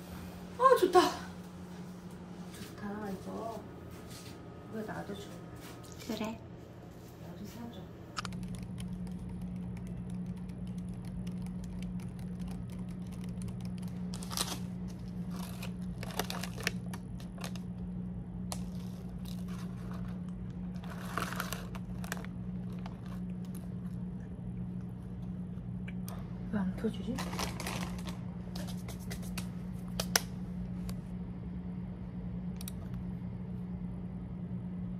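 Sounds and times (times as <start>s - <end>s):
steady low hum: 0.0s - 34.9s
plastic bag and wrapper rustling: 11.0s - 17.8s, 18.5s - 24.0s, 27.0s - 29.3s.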